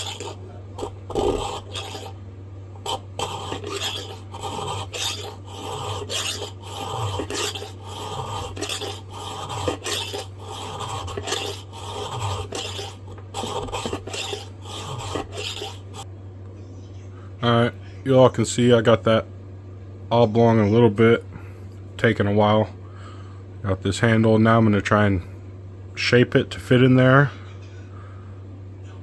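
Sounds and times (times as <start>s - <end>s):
file rasping through steel: 0.0s - 2.1s, 2.8s - 16.0s.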